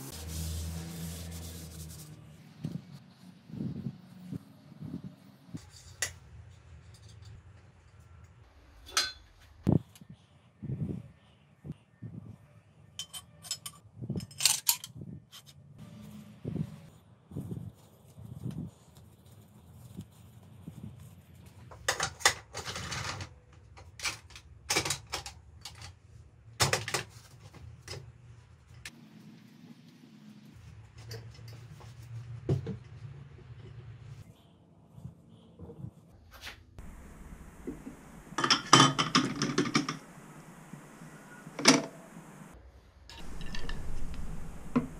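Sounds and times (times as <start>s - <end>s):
metal tools clinking: 43.1s - 44.1s.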